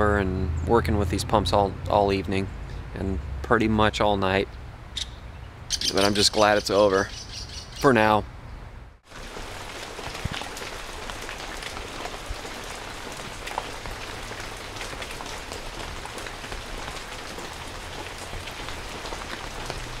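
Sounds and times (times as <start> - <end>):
rain falling on water: 9.0 - 20.0.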